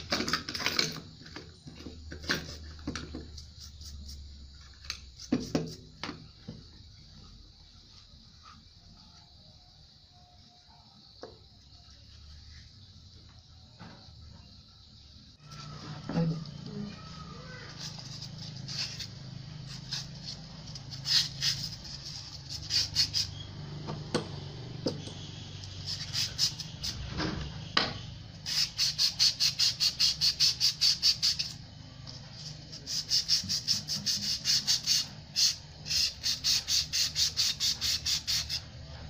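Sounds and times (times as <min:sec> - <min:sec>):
sandpaper rubbing on steel: 0:17.7 - 0:23.3, 0:25.8 - 0:27.0, 0:28.4 - 0:31.6, 0:32.4 - 0:38.6.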